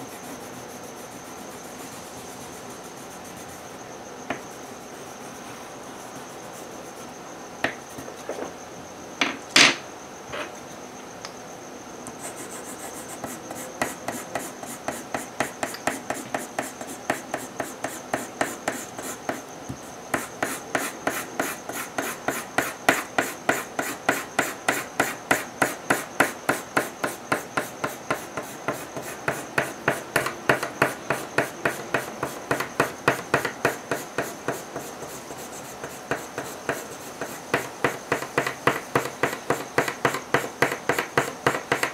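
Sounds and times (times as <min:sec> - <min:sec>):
pencil shading on paper: 0:12.2 - 0:19.4, 0:20.1 - 0:41.9.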